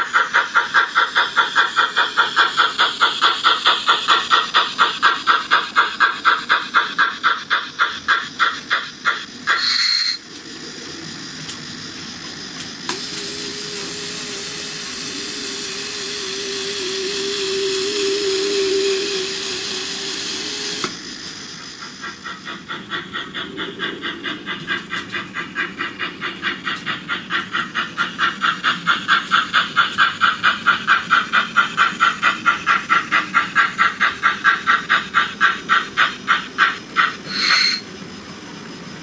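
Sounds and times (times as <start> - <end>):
engine drone: 0.0 - 39.0
steam locomotive chuffing: 0.0 - 39.0
train whistle blast: 37.3 - 37.9.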